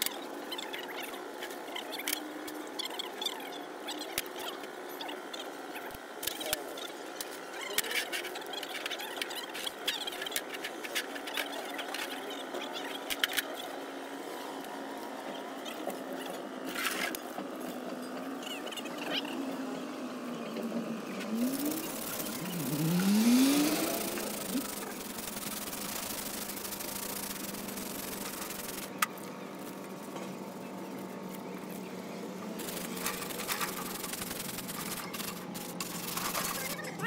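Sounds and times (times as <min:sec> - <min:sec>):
rising hum: 0:20.0 - 0:28.9.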